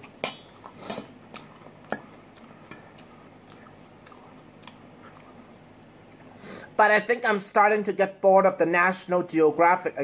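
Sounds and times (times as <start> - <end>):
chewing food: 0.0 - 6.4.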